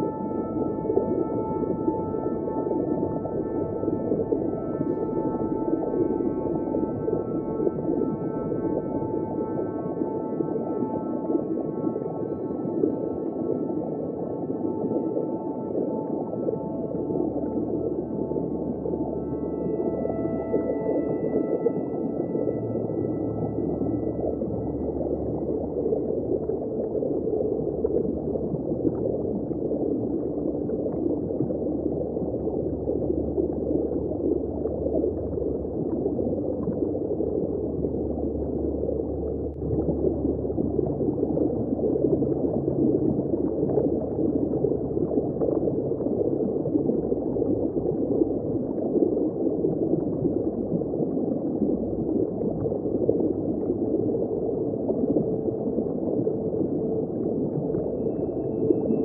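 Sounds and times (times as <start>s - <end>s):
muffled underwater rush of water: 0.0s - 59.0s.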